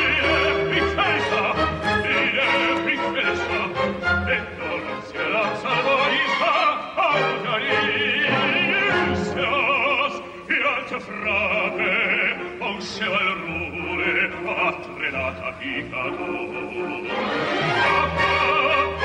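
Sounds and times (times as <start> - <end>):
operatic singing: 0.0 - 19.0.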